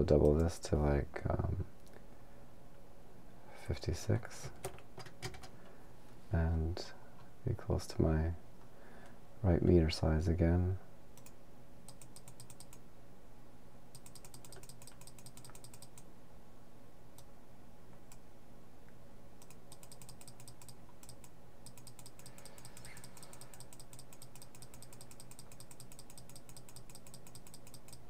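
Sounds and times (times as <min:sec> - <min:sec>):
low steady hum: 0:00.0 - 0:28.0
mouse button clicking rapidly: 0:11.2 - 0:12.8, 0:14.0 - 0:16.1, 0:19.4 - 0:28.0.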